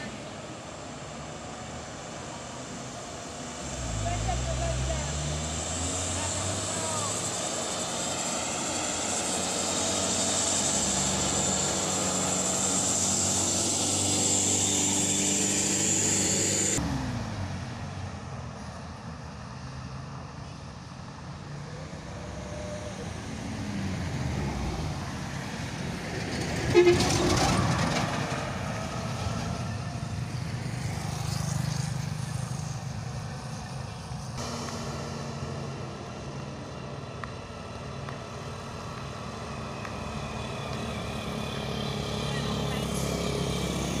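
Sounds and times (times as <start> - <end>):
diesel truck engines labouring: 0.0 - 44.0
passing car traffic: 0.0 - 44.0.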